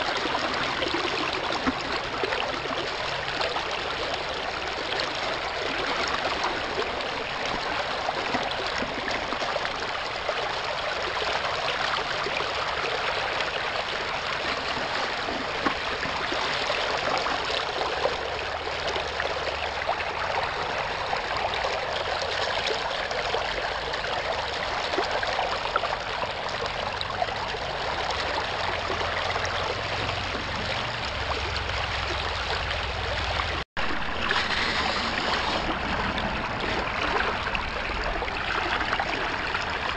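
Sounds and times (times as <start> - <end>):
water rushing through sluice: 0.0 - 39.9.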